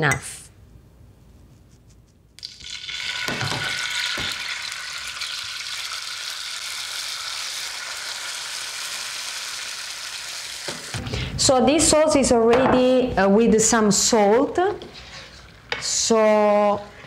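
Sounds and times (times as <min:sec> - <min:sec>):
oil sizzling in a frying pan: 0:02.4 - 0:11.0.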